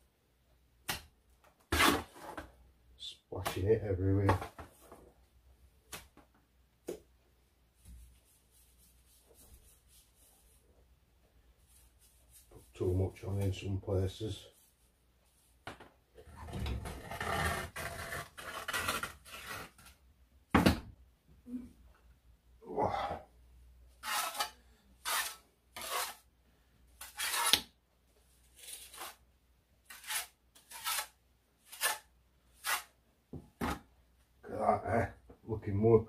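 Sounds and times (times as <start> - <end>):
trowel scraping mortar: 16.3 - 19.9, 24.0 - 26.3, 27.0 - 27.7, 29.9 - 33.0.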